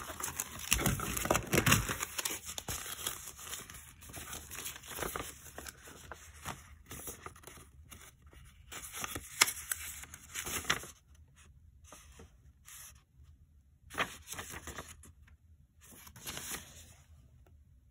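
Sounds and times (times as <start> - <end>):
sharp paper crackle: 0.0 - 11.0
paper rustling and crinkling: 0.0 - 13.0, 13.9 - 15.2, 15.8 - 17.1.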